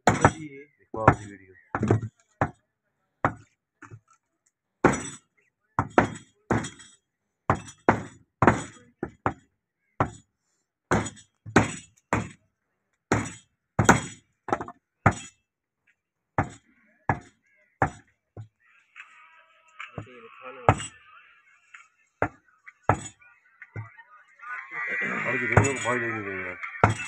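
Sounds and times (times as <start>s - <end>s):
cleaver chopping meat on wood: 1.0s - 2.6s, 3.2s - 3.5s, 5.8s - 6.8s, 7.5s - 9.4s, 10.0s - 10.2s, 10.9s - 12.4s, 13.1s - 15.3s, 16.4s - 18.5s, 22.2s - 23.2s.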